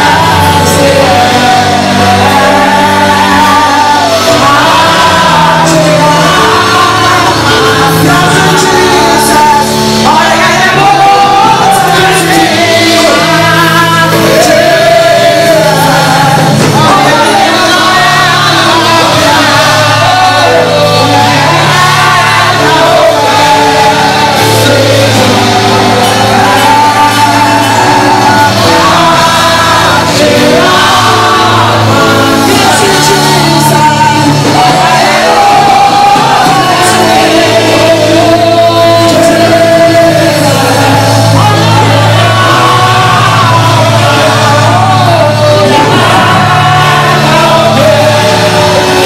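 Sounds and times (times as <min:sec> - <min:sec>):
congregation singing: 0:00.0 - 0:49.0
held bass notes: 0:00.0 - 0:49.0.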